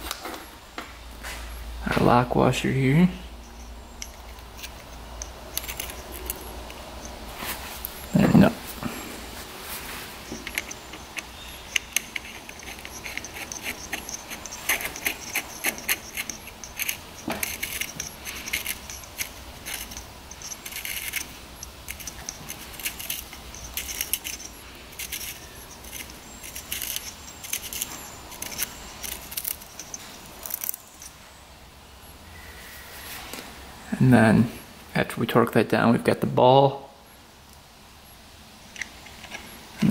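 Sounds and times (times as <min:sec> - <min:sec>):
light metallic clicks and clinks: 0:03.4 - 0:07.3, 0:10.2 - 0:31.2.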